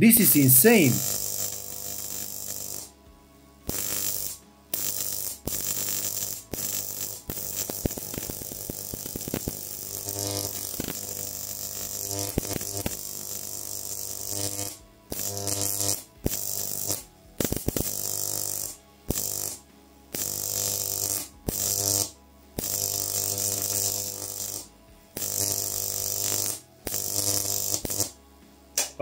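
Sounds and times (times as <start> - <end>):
high hiss: 0.0 - 2.9
electric arc buzzing: 0.0 - 28.2.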